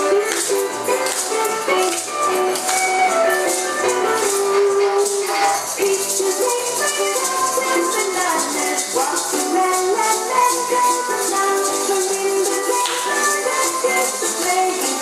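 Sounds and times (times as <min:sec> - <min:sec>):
samba music with held notes: 0:00.0 - 0:15.0
shaker rhythm: 0:00.0 - 0:15.0.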